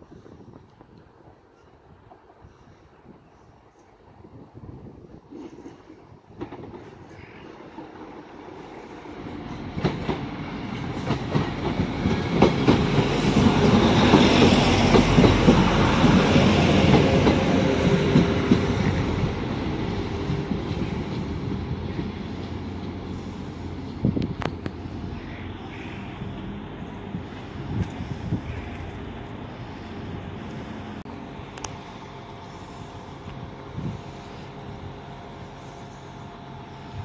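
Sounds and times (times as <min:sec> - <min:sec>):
diesel train engines running: 0:00.3 - 0:37.0
train wheels clicking over rail joints: 0:05.3 - 0:24.9.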